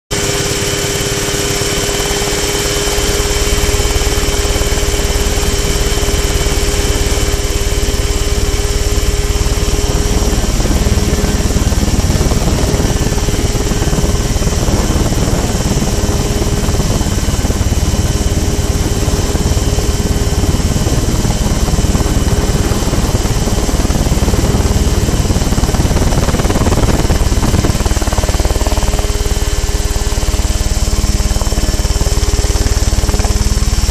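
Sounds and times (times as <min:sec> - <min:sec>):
two-stroke engine running: 0:00.1 - 0:33.9
heavy low rumble: 0:03.0 - 0:28.3.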